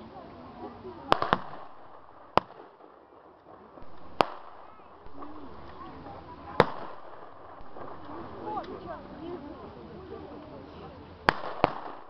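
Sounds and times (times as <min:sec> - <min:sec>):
murmur of voices: 0:00.0 - 0:12.0
blank gunshots: 0:01.1 - 0:03.0, 0:03.7 - 0:08.6, 0:11.3 - 0:12.0.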